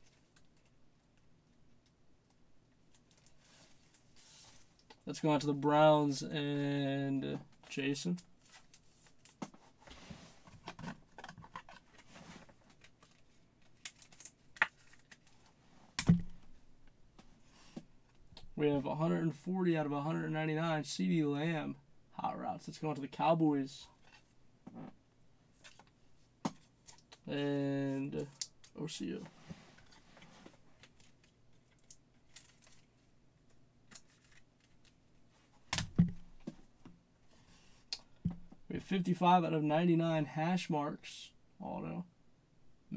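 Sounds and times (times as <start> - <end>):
cards being shuffled: 8.4 - 15.5, 33.9 - 35.0
loud thump: 16.1 - 16.4
trading cards rustling: 33.9 - 35.0.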